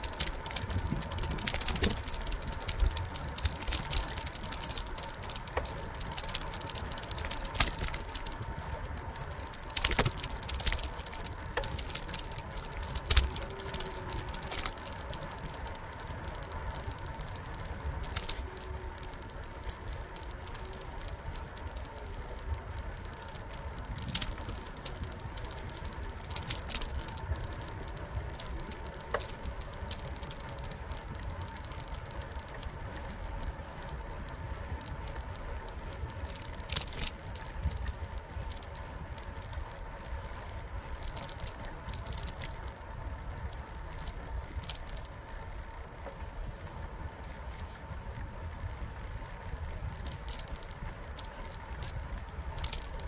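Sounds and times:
bicycle rattles and clicks: 0.0s - 53.0s
faint steady whine: 0.0s - 53.0s
tyres and wind rumble: 0.0s - 53.0s.

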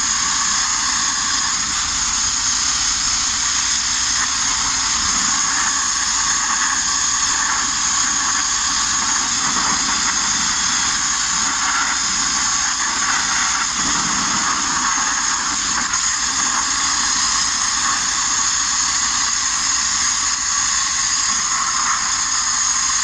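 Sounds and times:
abrasive blasting hiss: 0.0s - 23.0s.

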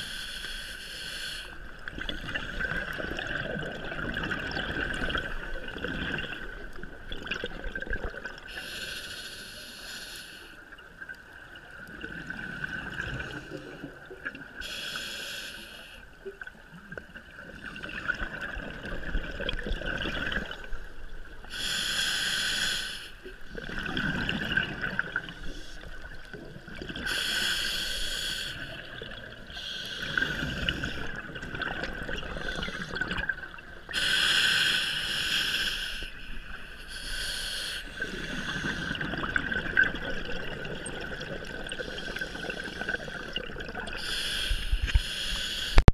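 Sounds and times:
rush of exhaled bubbles: 1.8s - 8.5s, 11.8s - 14.6s, 17.4s - 20.9s, 23.5s - 27.2s, 28.6s - 34.0s, 38.0s - 44.1s.

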